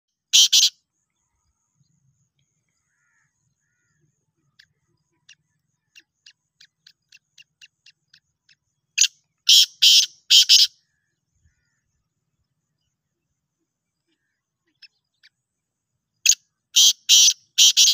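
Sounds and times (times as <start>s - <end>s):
bird harsh rasping call: 0.3s - 0.8s, 9.0s - 11.9s, 16.3s - 17.9s.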